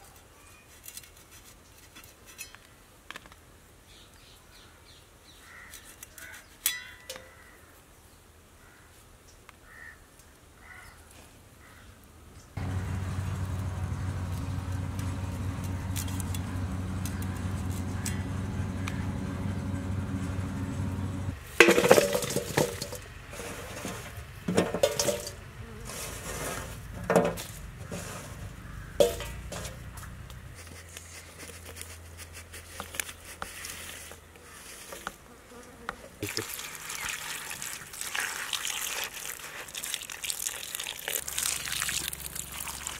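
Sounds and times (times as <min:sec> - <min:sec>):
steady low hum: 0:12.6 - 0:25.9
fish and knife clinking in steel bowl: 0:24.6 - 0:25.4.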